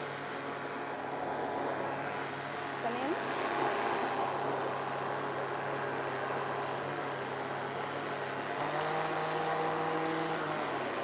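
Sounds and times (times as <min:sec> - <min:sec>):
blender motor whirring: 0:05.1 - 0:11.0.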